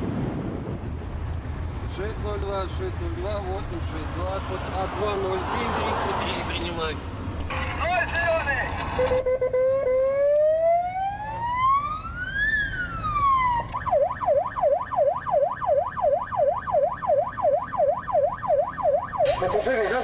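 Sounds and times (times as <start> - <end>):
police siren wailing and yelping: 7.5 - 20.0.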